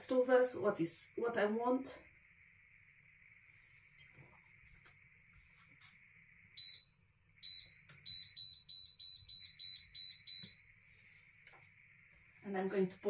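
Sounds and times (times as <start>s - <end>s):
faint high whine: 0.0s - 13.0s
touch control beeps: 6.6s - 10.6s.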